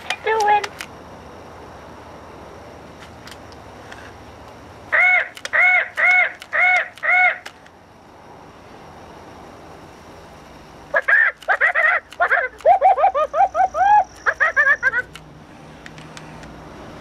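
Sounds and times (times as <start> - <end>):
toy parrot squawks: 4.9 - 7.5, 10.9 - 15.1.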